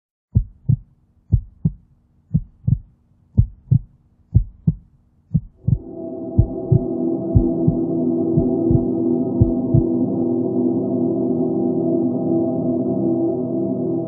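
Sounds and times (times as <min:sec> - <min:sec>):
heartbeat thumps: 0:00.3 - 0:09.9
held music chord: 0:05.6 - 0:14.0.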